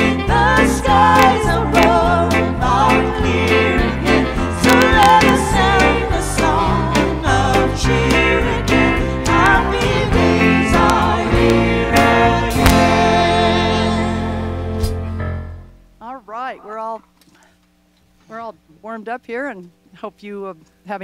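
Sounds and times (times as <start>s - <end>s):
woman singing with vibrato: 0.0s - 14.5s
live band playing: 0.0s - 15.3s.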